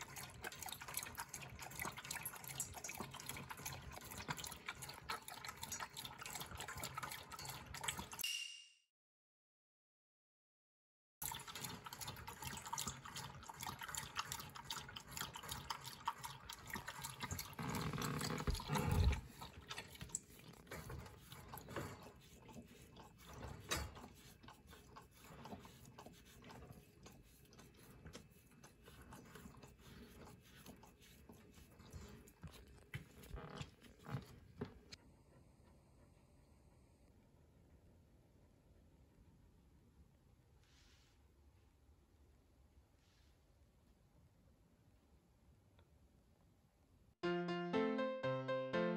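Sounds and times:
dog lapping water from bowl: 0.0s - 8.2s, 11.2s - 35.0s
dog licking empty bowl: 0.0s - 8.2s, 11.2s - 35.0s.

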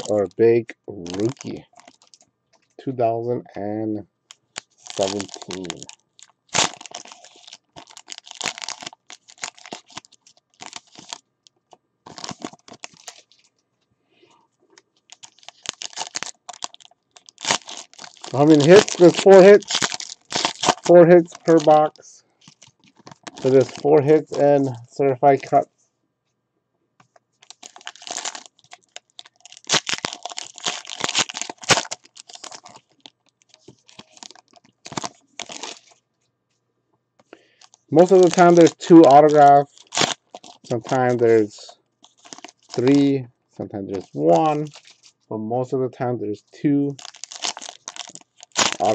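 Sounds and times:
foil wrappers crinkling and tearing: 0.0s - 0.2s, 1.0s - 2.2s, 4.3s - 11.2s, 12.1s - 13.5s, 14.7s - 24.7s, 27.4s - 36.0s, 37.3s - 43.1s, 43.9s - 45.1s, 46.9s - 48.9s.

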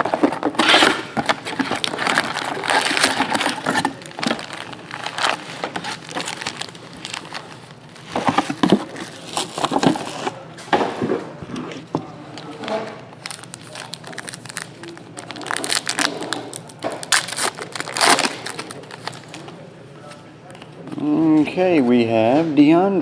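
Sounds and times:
foil packs crinkling and rustling: 0.0s - 10.4s, 12.4s - 19.6s.

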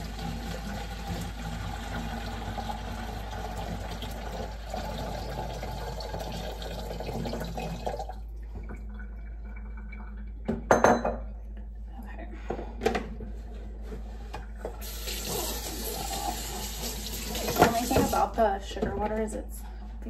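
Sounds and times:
water pouring into jug: 0.0s - 10.4s, 14.8s - 18.1s.

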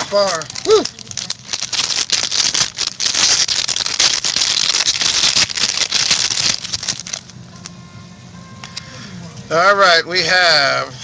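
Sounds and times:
foil wrapper crinkling and tearing: 0.0s - 7.4s.

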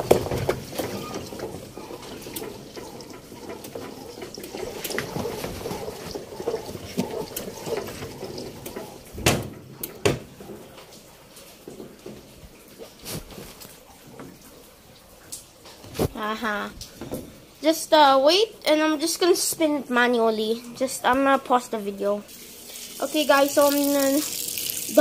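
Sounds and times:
water draining from washing machine: 0.0s - 18.1s, 18.7s - 25.0s.

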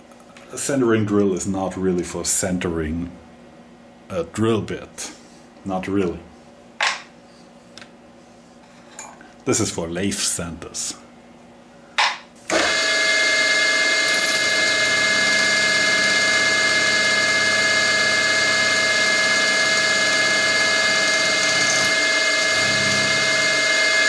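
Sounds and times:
drill press whining: 12.5s - 24.0s.

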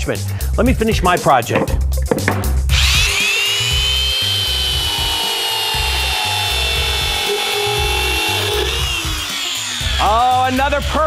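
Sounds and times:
background music with steady beat: 0.0s - 11.0s
circular saw cutting wood: 2.7s - 11.0s.

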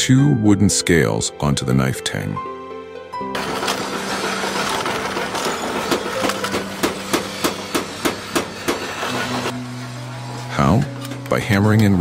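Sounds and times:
hammer strikes: 4.7s - 9.5s.

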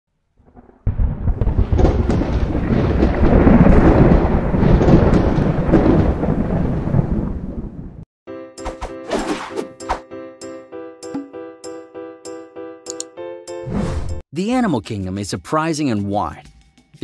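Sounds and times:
thunder rumble: 0.4s - 8.0s.

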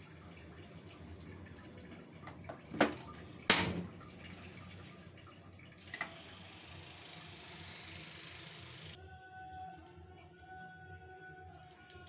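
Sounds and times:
gas flame hissing: 5.8s - 9.0s.

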